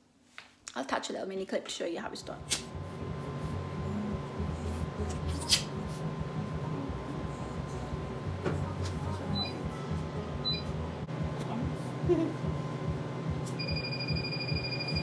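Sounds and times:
low machine hum: 0:02.2 - 0:15.0
short electronic beeps: 0:10.4 - 0:10.7, 0:13.6 - 0:15.0
steady high beep tone: 0:13.6 - 0:15.0.

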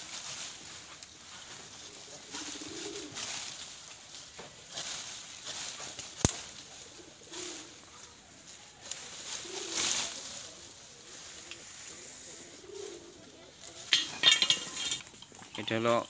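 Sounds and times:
pigeon cooing: 0:01.5 - 0:03.5, 0:05.9 - 0:15.5.

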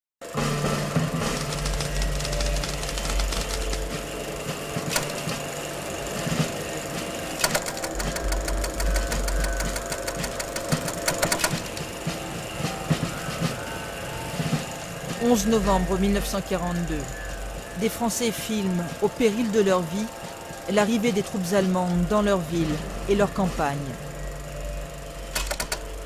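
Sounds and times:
film projector clattering: 0:00.3 - 0:13.2, 0:25.0 - 0:26.0.

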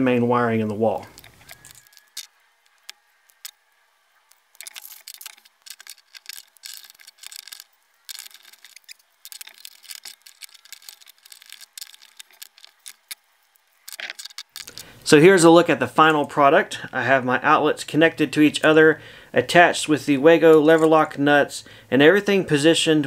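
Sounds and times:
wire strippers snipping: 0:04.5 - 0:13.2, 0:13.8 - 0:14.9.

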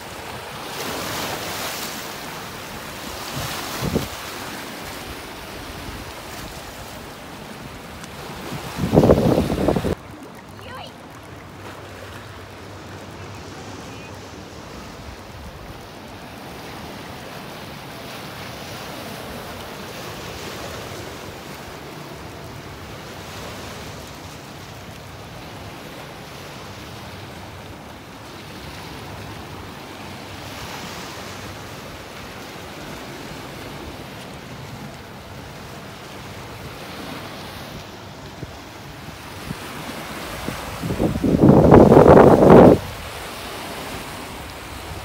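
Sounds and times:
waves splashing against rocks: 0:00.0 - 0:13.2.

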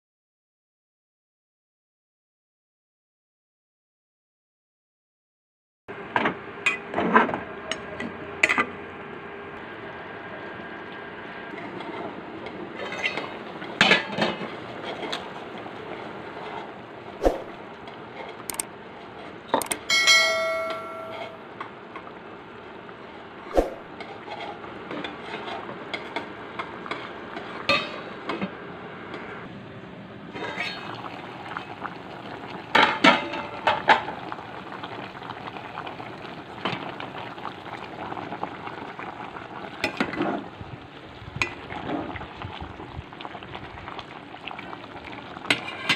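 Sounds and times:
ladle and bowls clinking on pot: 0:19.6 - 0:21.4
short ringing tone: 0:19.6 - 0:21.4.

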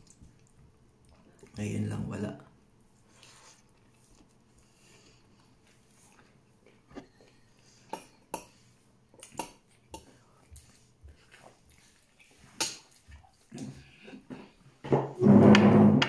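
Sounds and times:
eating by hand clicks and taps: 0:07.9 - 0:08.6, 0:09.2 - 0:11.4.

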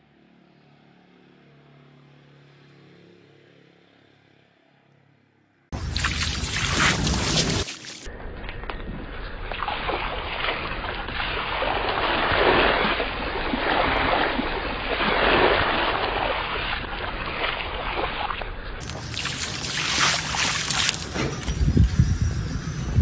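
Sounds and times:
water gushing and splashing: 0:05.8 - 0:08.1, 0:09.6 - 0:21.8.

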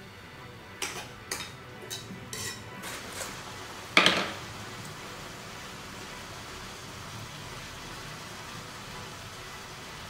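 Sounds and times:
cookware clatter: 0:04.0 - 0:04.4.

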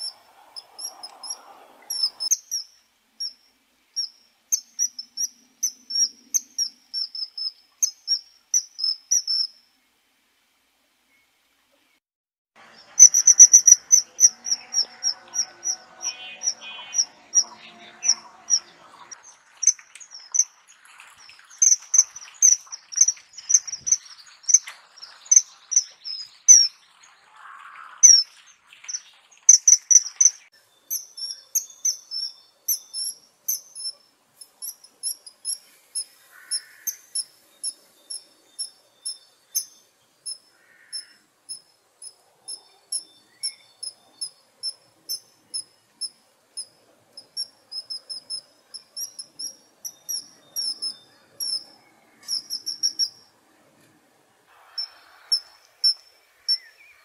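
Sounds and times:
kingfisher calling: 0:12.8 - 0:20.6.

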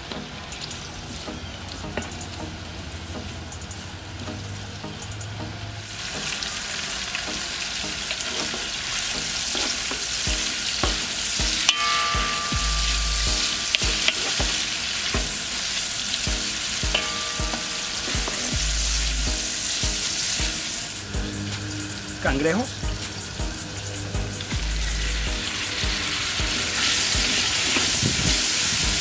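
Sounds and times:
vegetables sizzling in oil: 0:05.8 - 0:29.0.

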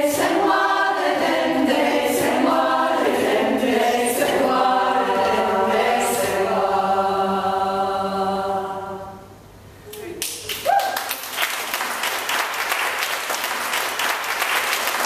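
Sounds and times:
women's choir singing unaccompanied: 0:00.0 - 0:09.4.

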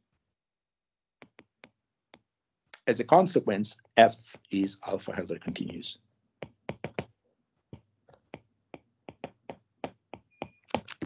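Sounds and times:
stylus tapping on tablet screen: 0:01.2 - 0:02.3, 0:05.5 - 0:10.9.

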